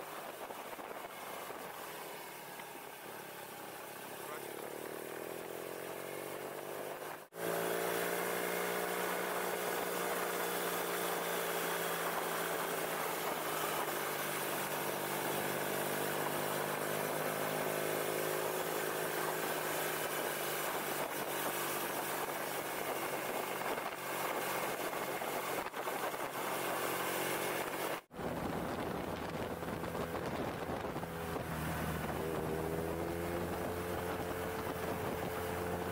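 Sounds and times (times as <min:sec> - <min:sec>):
wind noise: 0:00.0 - 0:01.9, 0:20.6 - 0:35.9
motorcycle engine cruising: 0:00.0 - 0:35.9.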